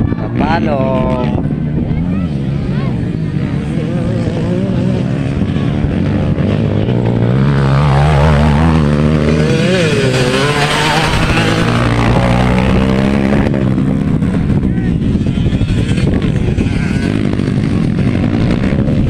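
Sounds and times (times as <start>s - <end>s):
dirt bike engines racing: 0.0s - 19.0s.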